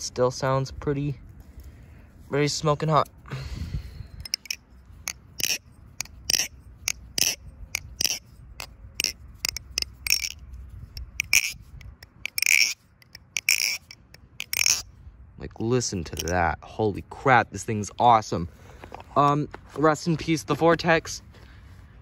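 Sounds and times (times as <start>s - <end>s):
butterfly knife clacking: 4.2s - 14.8s.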